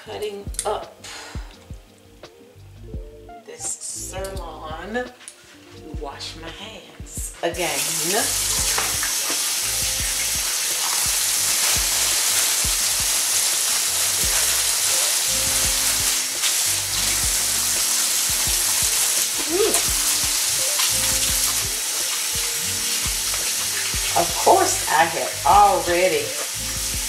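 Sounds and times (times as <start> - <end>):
water running from faucet: 7.6 - 27.0
hands being washed: 7.7 - 27.0.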